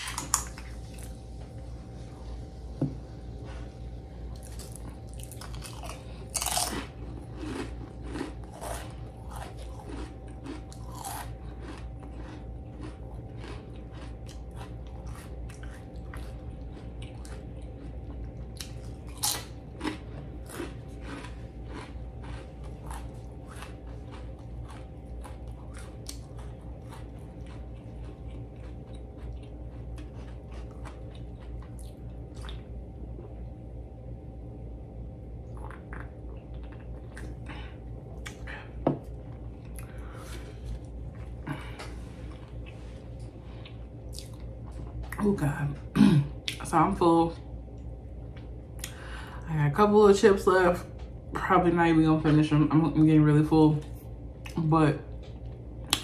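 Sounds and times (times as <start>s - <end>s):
crunching and chewing chips: 0.0s - 1.8s, 3.3s - 33.7s, 35.4s - 46.8s.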